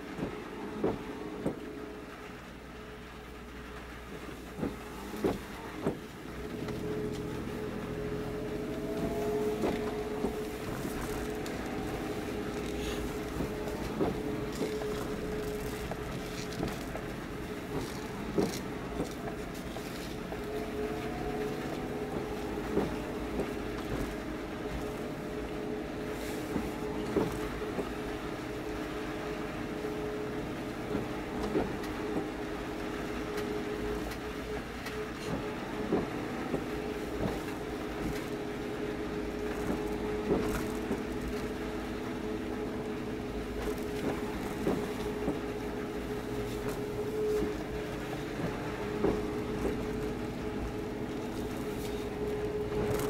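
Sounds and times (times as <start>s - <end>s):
boat engines humming: 0.0s - 53.0s.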